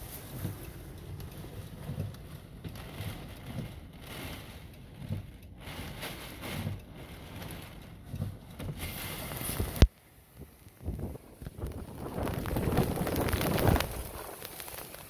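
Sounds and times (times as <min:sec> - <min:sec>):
rain beating on car windows: 0:00.0 - 0:15.0
gusting wind: 0:05.6 - 0:15.0.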